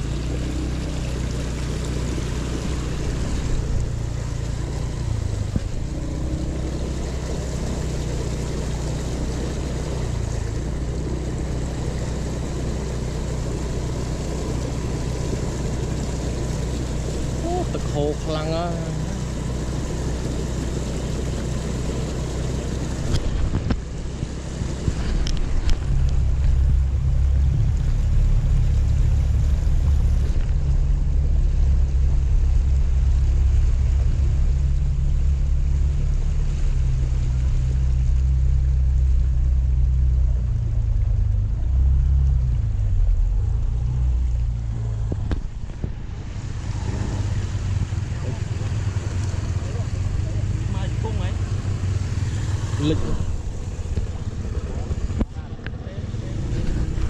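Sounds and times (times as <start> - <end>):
scooter engine running: 0.0 - 57.0
water splashing: 0.0 - 57.0
wind on microphone: 22.9 - 35.6.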